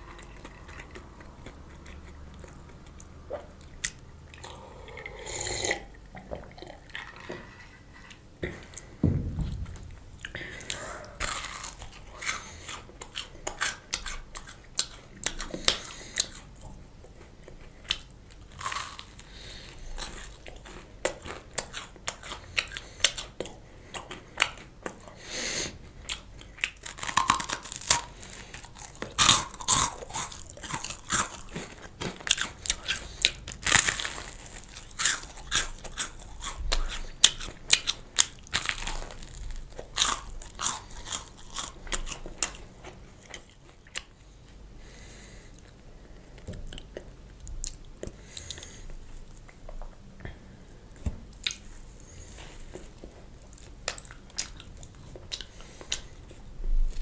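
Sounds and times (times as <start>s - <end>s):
crunchy bites of toast: 17.9s - 19.4s, 26.1s - 42.6s.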